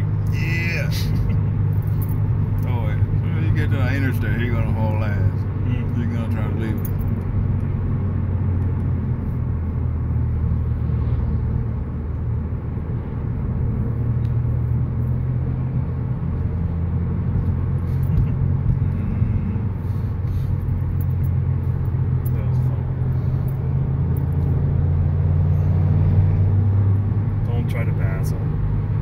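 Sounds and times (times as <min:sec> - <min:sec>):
car engine drone: 0:00.0 - 0:29.0
road noise: 0:00.0 - 0:29.0.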